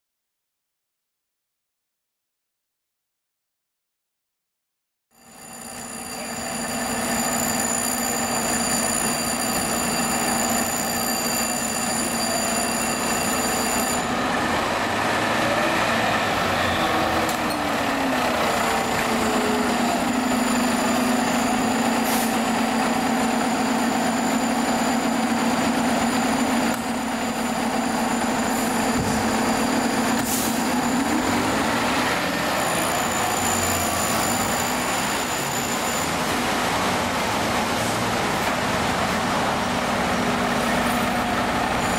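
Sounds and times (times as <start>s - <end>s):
fire engine siren: 5.4s - 36.8s.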